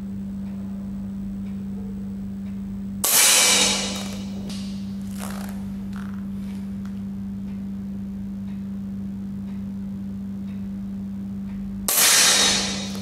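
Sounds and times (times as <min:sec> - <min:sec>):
steady low hum: 0:00.0 - 0:13.0
air pistol shot: 0:03.0 - 0:04.6, 0:11.9 - 0:13.0.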